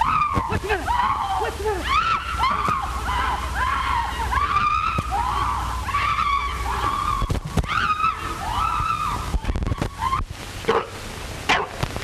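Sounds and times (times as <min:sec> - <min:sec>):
high-pitched voices crying out: 0:00.0 - 0:10.3
low steady film track hum: 0:00.0 - 0:11.9.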